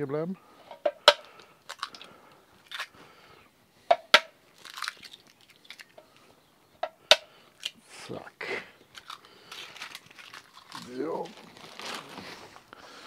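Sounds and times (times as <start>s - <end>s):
shell crunching: 0.7s - 6.3s, 8.8s - 12.7s
eggshells cracking: 0.9s - 3.2s, 3.9s - 6.3s, 8.8s - 12.0s.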